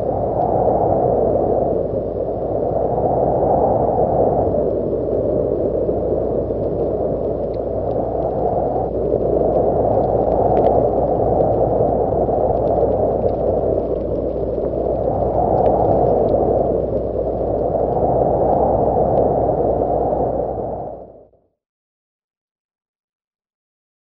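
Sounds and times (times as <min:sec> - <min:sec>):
raindrops ticking: 0:06.6 - 0:17.6.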